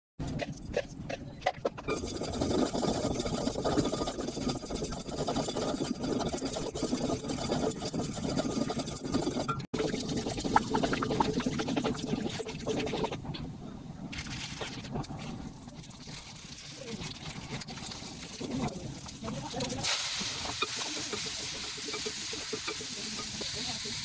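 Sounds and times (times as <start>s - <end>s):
wooden spoon scraping in pot: 14.1s - 23.7s.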